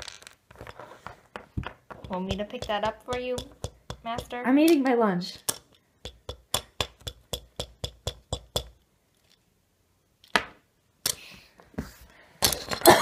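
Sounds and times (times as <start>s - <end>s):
toys being handled: 0.0s - 5.9s, 9.0s - 12.9s.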